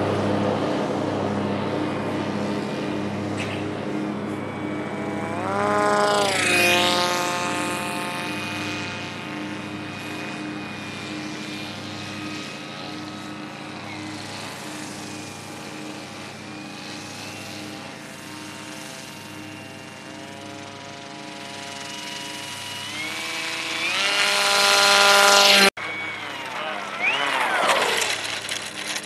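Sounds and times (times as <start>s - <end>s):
model aircraft motor and propeller: 0.0s - 29.0s.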